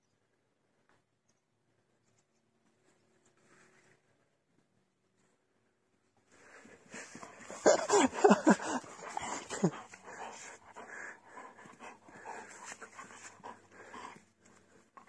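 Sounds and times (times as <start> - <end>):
dog panting and snuffling: 6.7 - 15.0.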